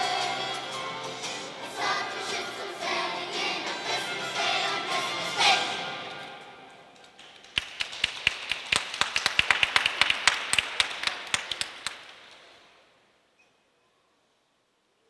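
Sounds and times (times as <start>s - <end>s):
audience applause: 7.2s - 12.5s.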